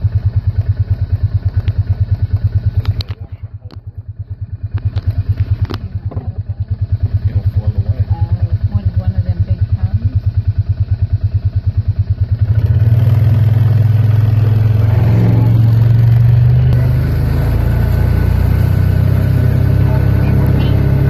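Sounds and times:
vehicle engine running: 0:00.0 - 0:21.0.

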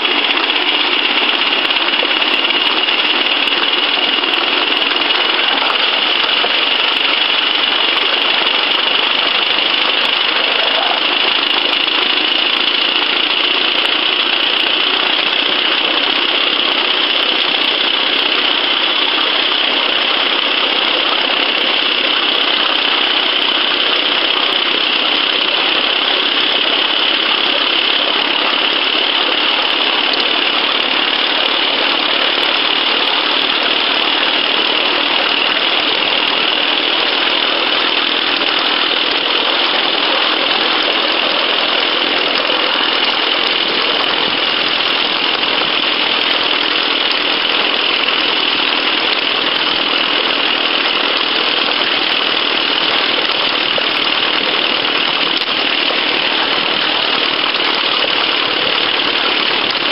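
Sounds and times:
steam locomotive hissing: 0:00.0 - 0:15.2.

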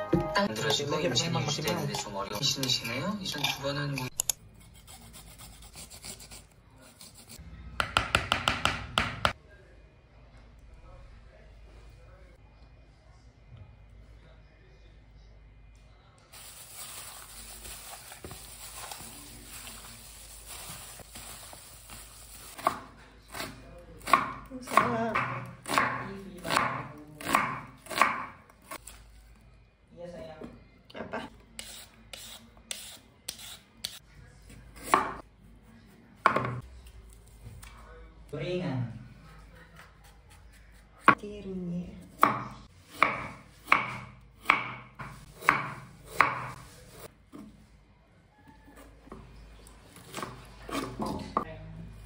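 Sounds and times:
knife slicing onion on board: 0:22.6 - 0:28.9, 0:31.6 - 0:34.0, 0:42.2 - 0:47.5.

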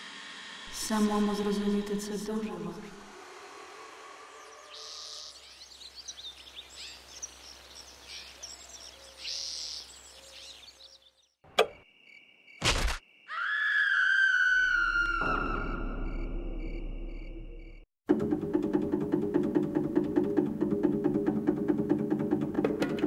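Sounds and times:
birds chirping: 0:04.3 - 0:11.4.

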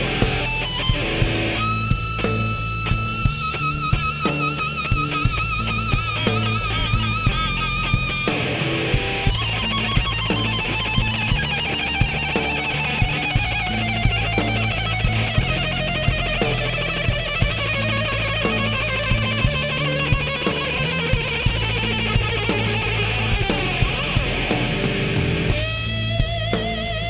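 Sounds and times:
bass guitar: 0:00.0 - 0:27.0
drums steady slow beat: 0:00.0 - 0:27.0
electric guitar solo: 0:00.0 - 0:27.0.

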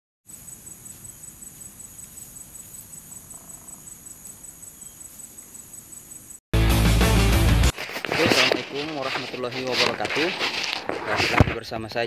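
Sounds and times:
high-pitched insect trill: 0:00.3 - 0:06.4.

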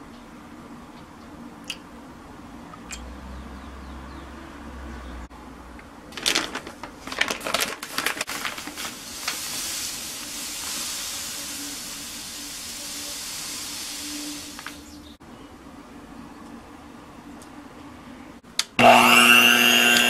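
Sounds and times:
plastic bag crinkling: 0:06.1 - 0:10.9
sugar pouring: 0:07.8 - 0:13.6.

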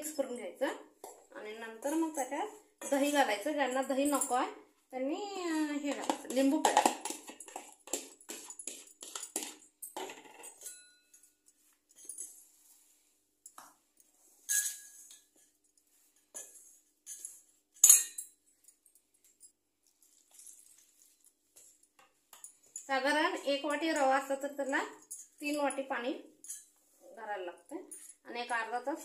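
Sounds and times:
spoon clinking in steel bowl: 0:05.9 - 0:11.4, 0:14.4 - 0:15.5, 0:16.3 - 0:18.4, 0:26.4 - 0:26.8.

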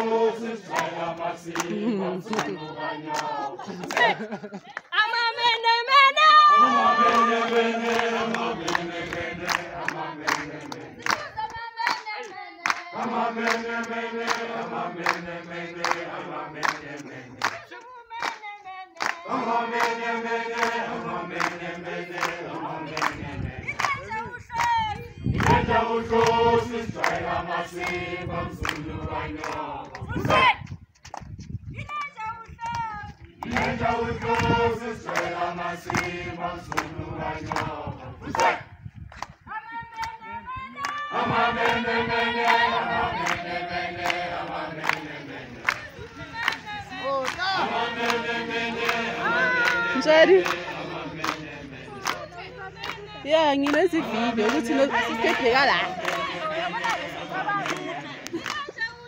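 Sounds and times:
crowd singing: 0:00.0 - 0:30.6, 0:32.8 - 0:38.8, 0:39.5 - 0:59.0
people clapping: 0:00.0 - 0:59.0
person singing alone: 0:01.6 - 0:03.6
people shouting: 0:05.4 - 0:07.5, 0:49.2 - 0:50.8.

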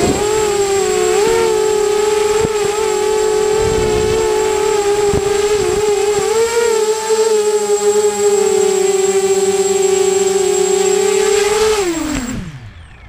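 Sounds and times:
model aircraft motor buzzing: 0:00.0 - 0:13.0.

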